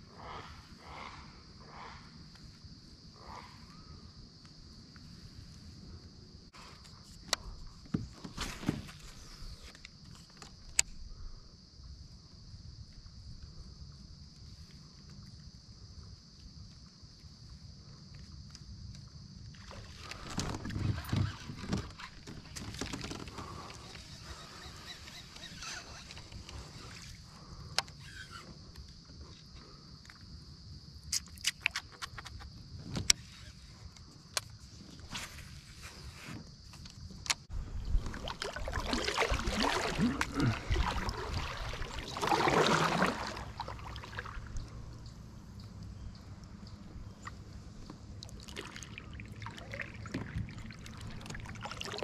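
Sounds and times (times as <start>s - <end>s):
paddle splashing water: 19.6s - 27.2s, 37.6s - 44.8s, 47.0s - 52.0s
short creaks: 20.0s - 29.4s.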